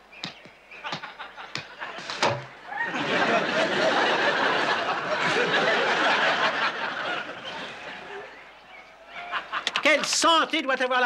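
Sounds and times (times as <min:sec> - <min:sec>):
audience laughter: 0:00.8 - 0:08.4, 0:09.1 - 0:09.8.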